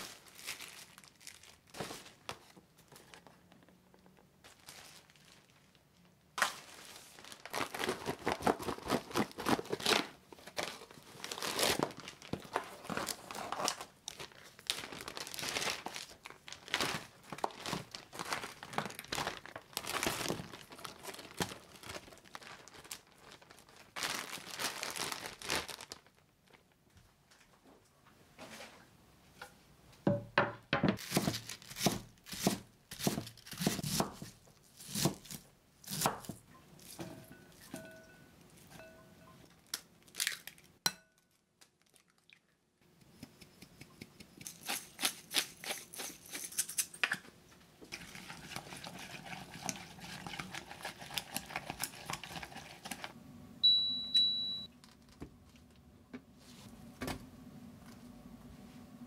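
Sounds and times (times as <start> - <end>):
plastic bag crinkling: 0.0 - 2.3, 4.4 - 26.8
cooktop beep: 53.6 - 54.7.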